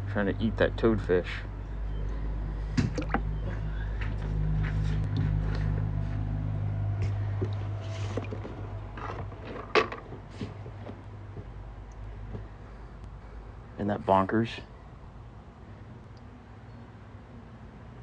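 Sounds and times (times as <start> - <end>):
steady low hum: 0.0 - 18.0
water dripping and splashing: 2.8 - 3.3.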